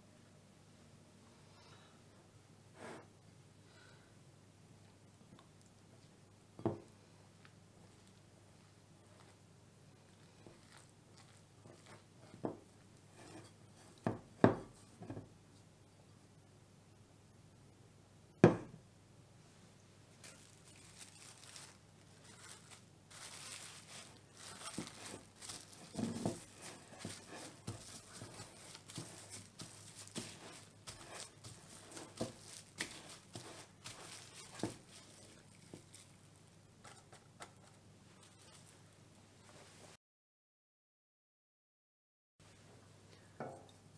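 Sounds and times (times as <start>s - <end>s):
cling film crinkling: 10.1s - 12.1s, 20.2s - 36.4s.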